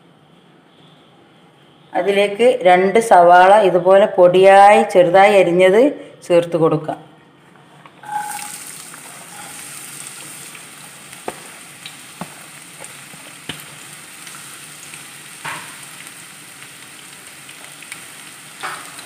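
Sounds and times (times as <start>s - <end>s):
onions sizzling in hot oil: 8.0s - 19.0s.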